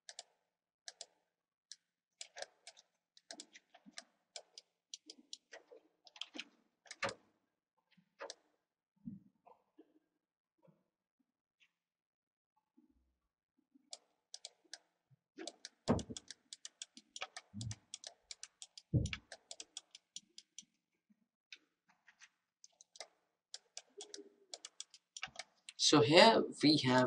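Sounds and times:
mouse and keyboard clicking: 0:00.0 - 0:00.3, 0:00.9 - 0:07.2, 0:14.0 - 0:14.8, 0:15.4 - 0:20.7, 0:22.7 - 0:25.8.

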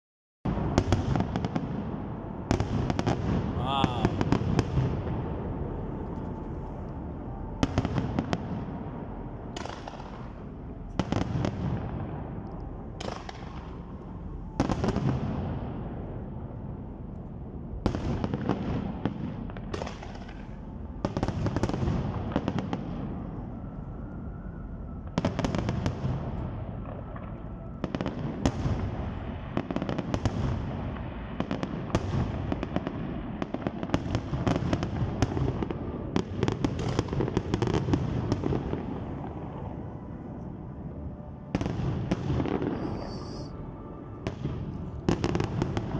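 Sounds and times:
firework crackling: 0:41.5 - 0:43.6.

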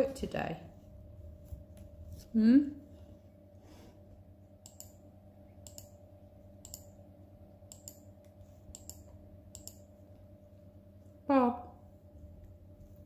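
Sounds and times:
faint steady hum: 0:00.0 - 0:13.0
laptop keys clicking: 0:04.6 - 0:05.0, 0:05.6 - 0:05.9, 0:07.7 - 0:08.1, 0:08.7 - 0:09.8.

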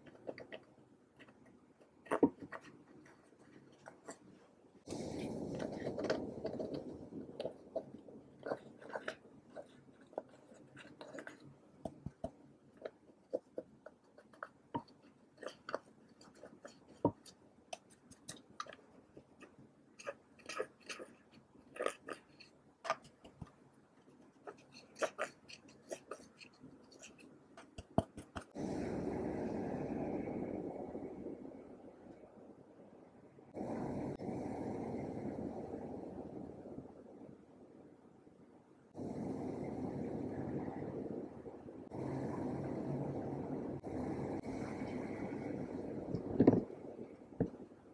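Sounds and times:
spatula scraping eyeshadow: 0:05.0 - 0:28.6.

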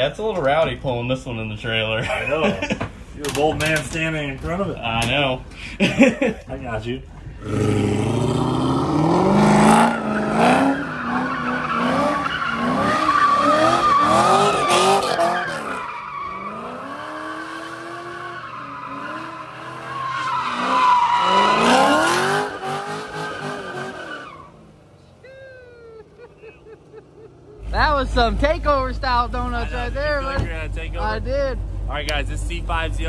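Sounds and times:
car engine revving: 0:07.3 - 0:24.7
tyres squealing: 0:09.9 - 0:17.2, 0:17.8 - 0:24.5.

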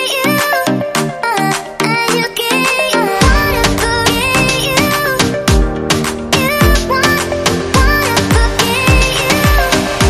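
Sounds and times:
background music with beat: 0:00.0 - 0:10.0
pitch-bending melody line: 0:01.6 - 0:08.0
deep sliding bass hits: 0:03.2 - 0:07.0.

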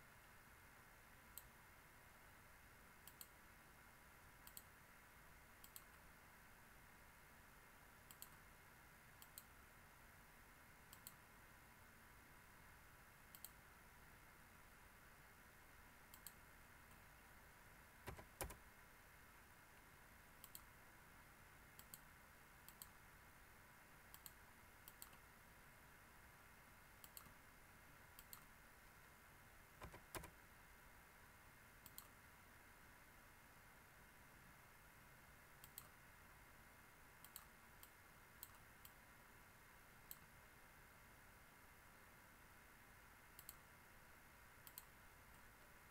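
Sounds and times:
faint steady hiss: 0:00.0 - 0:45.9
computer mouse clicking: 0:01.3 - 0:01.5, 0:03.0 - 0:03.4, 0:04.4 - 0:04.7, 0:05.6 - 0:06.0, 0:08.1 - 0:08.4, 0:09.2 - 0:09.5, 0:10.9 - 0:11.2, 0:13.3 - 0:13.6, 0:16.1 - 0:17.1, 0:18.0 - 0:18.6, 0:20.4 - 0:20.7, 0:21.8 - 0:23.0, 0:24.1 - 0:25.2, 0:27.0 - 0:27.4, 0:28.2 - 0:28.5, 0:29.8 - 0:30.4, 0:31.8 - 0:32.2, 0:35.6 - 0:36.0, 0:37.2 - 0:39.0, 0:40.1 - 0:40.3, 0:43.4 - 0:43.7, 0:44.6 - 0:45.5.

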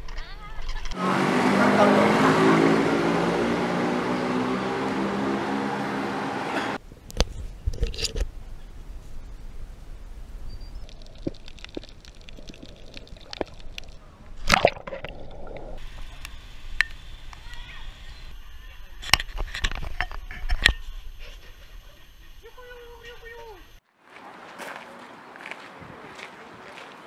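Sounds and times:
muffled underwater bubbling: 0:10.8 - 0:16.3
person splashing into water: 0:14.4 - 0:15.8.

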